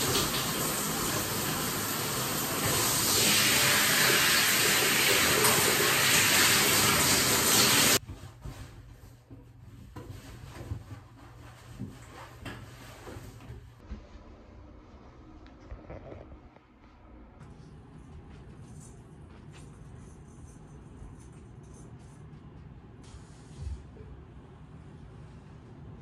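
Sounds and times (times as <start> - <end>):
shower water spraying: 0.0 - 8.0.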